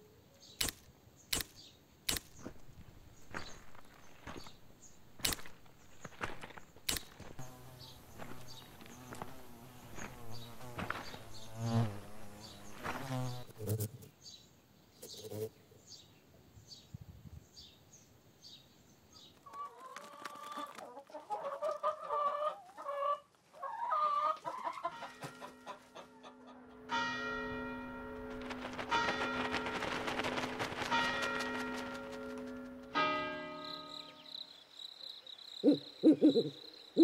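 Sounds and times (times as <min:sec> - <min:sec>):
hens clucking: 0:19.4 - 0:26.8.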